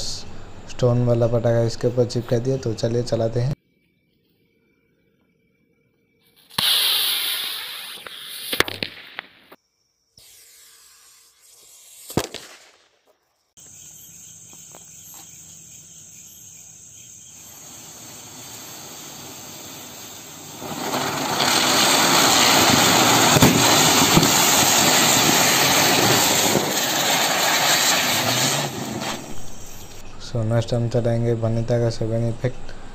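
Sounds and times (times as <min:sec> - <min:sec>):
ground fireworks hissing and crackling: 0:06.3 - 0:09.6, 0:10.2 - 0:30.1
firework bangs: 0:06.4 - 0:09.6, 0:10.2 - 0:13.1, 0:17.4 - 0:30.0
firework rocket hiss: 0:06.4 - 0:09.6, 0:10.2 - 0:13.0, 0:16.9 - 0:30.0.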